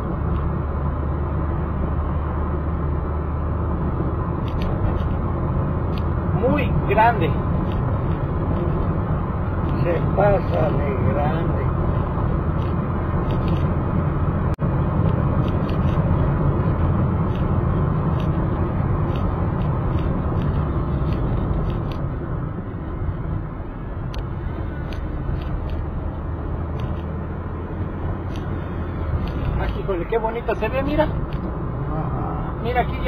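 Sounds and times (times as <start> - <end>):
car engine and tyre rumble: 0.0 - 33.0.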